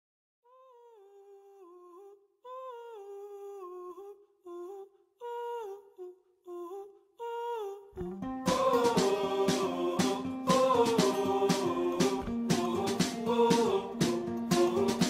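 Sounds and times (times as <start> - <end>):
person humming a slow melody: 0.5 - 8.2.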